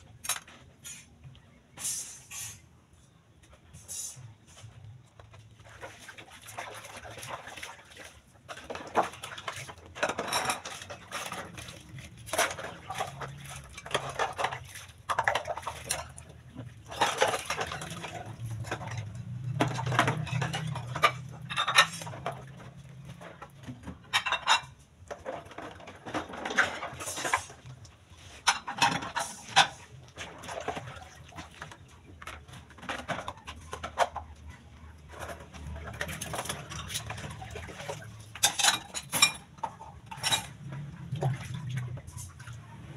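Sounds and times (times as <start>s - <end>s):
hard objects clattering: 8.5s - 40.9s.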